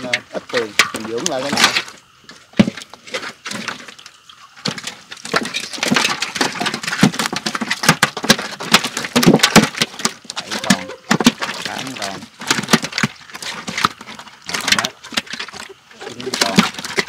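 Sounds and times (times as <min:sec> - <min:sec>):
fish thrashing and splashing: 0:00.0 - 0:17.0.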